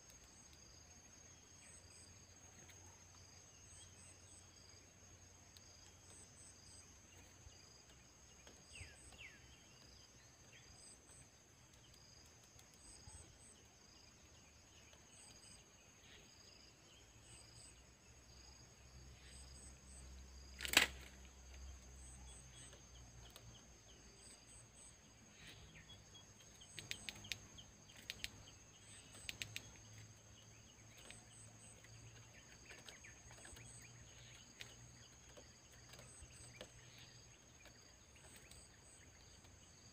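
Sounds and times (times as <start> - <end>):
faint clicks: 0.0 - 0.9, 5.1 - 15.6, 20.5 - 25.6, 26.3 - 39.7
insects trilling: 0.0 - 39.9.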